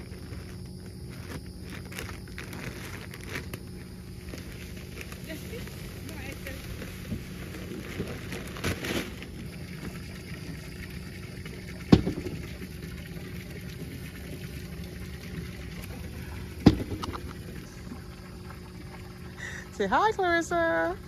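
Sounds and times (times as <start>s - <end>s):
steady low hum: 0.0s - 21.0s
sharp knocks: 11.9s - 12.5s, 16.6s - 17.2s.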